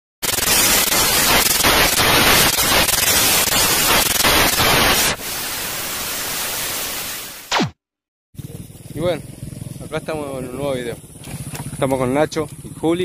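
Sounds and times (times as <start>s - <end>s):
static hiss: 0.2s - 7.7s
television static crackling: 0.2s - 7.7s.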